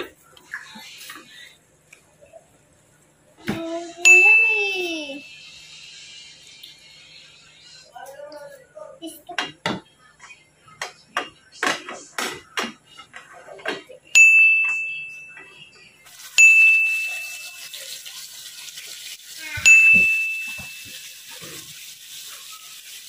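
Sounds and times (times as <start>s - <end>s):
bell-like dings: 14.2s - 15.6s, 16.4s - 17.6s, 19.7s - 20.9s.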